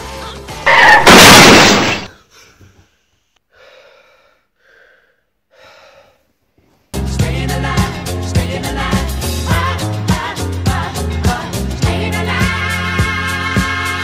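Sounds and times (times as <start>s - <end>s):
music: 0.0s - 0.7s, 6.9s - 14.0s
loud burst of noise: 0.7s - 2.1s
young man gasping for breath: 3.5s - 6.3s.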